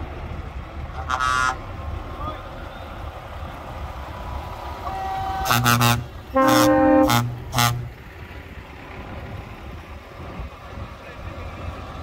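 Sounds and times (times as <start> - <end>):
passing trucks rumbling: 0.0 - 12.0
truck air horn blasts: 1.0 - 1.6, 4.9 - 8.0.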